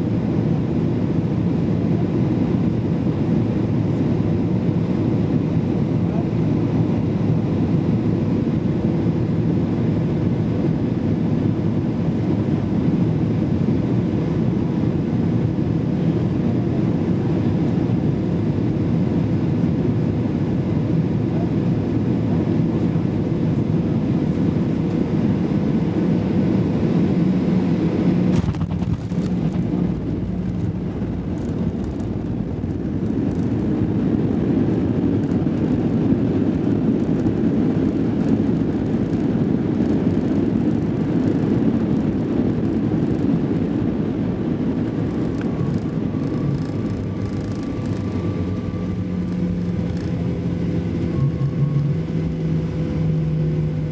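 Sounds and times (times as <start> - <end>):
jet engine roar in cabin: 0.0 - 53.9
low runway rumble: 0.0 - 53.9
steady cabin hum: 27.9 - 35.2, 43.8 - 53.9.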